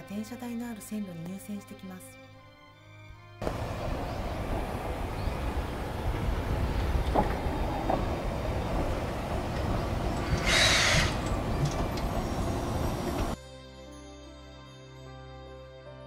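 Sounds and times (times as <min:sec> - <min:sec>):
steam locomotive rumbling: 0:03.4 - 0:13.4.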